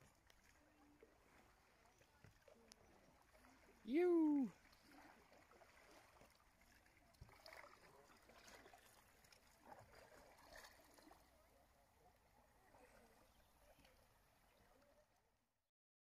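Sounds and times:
paddle dipping into water: 0.0s - 15.2s.

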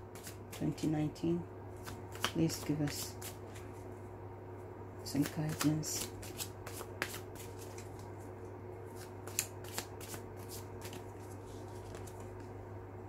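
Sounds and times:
cards being shuffled: 0.1s - 0.9s, 1.8s - 3.7s, 5.2s - 8.3s, 8.9s - 12.6s.

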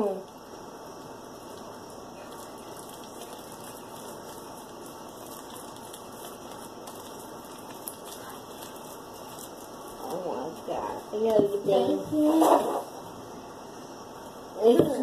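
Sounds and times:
slime crackling in hands: 0.2s - 11.3s.

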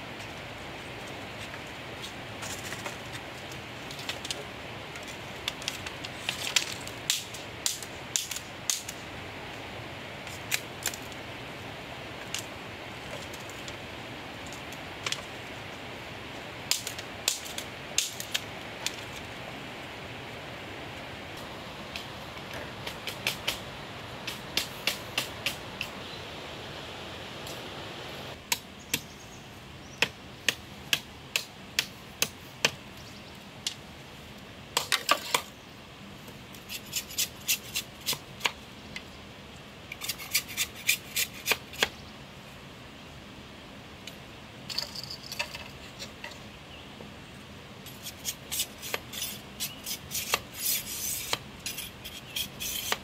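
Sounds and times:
background hiss: 0.0s - 53.0s
bamboo cracking and clattering: 2.4s - 9.0s, 16.7s - 19.3s, 34.8s - 35.5s.

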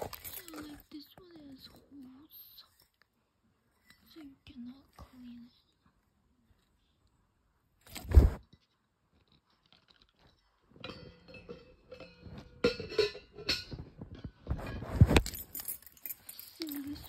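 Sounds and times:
microphone handling thumps: 8.0s - 8.4s.

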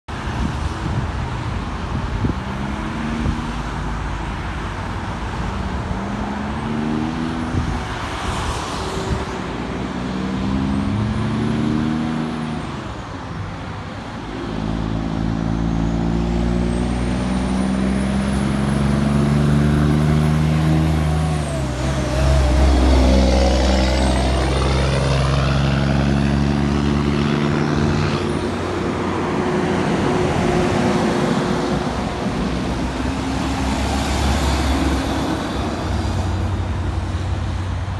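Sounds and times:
truck diesel engine shifting gears: 14.7s - 36.8s.

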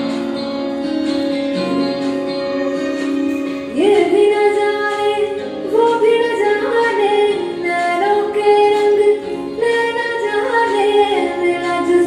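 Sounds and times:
woman singing film song: 2.4s - 12.0s.

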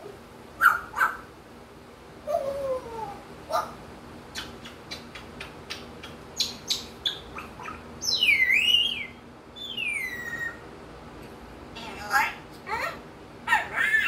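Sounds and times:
parrot whistling: 6.4s - 10.6s.

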